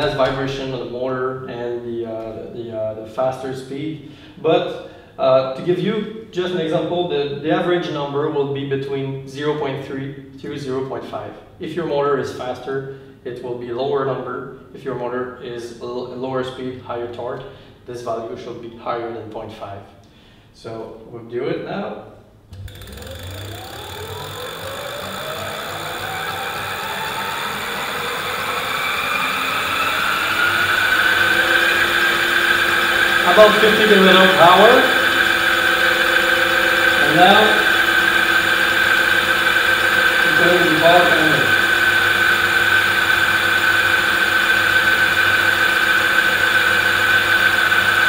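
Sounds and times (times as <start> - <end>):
electric hub motor whine: 0.0 - 1.0, 22.5 - 48.0.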